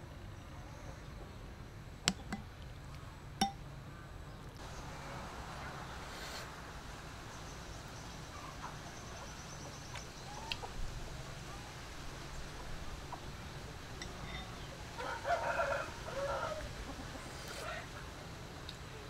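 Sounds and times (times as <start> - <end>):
rooster crowing: 15.0 - 16.8.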